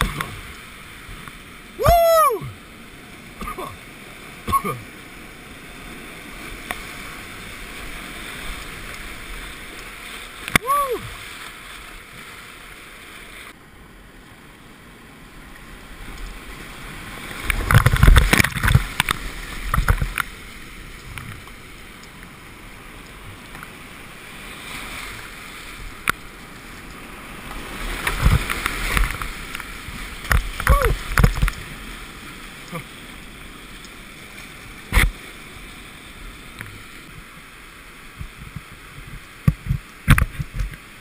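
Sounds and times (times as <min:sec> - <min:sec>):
whitewater rapids rushing: 0:00.0 - 0:02.7, 0:05.6 - 0:13.6, 0:24.0 - 0:33.2
water crashing and splashing: 0:00.0 - 0:41.0.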